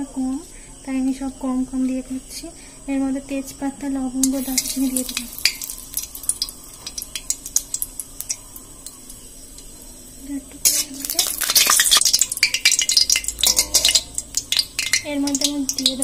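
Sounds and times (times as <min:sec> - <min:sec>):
spices sizzling in hot oil: 0:04.1 - 0:16.0.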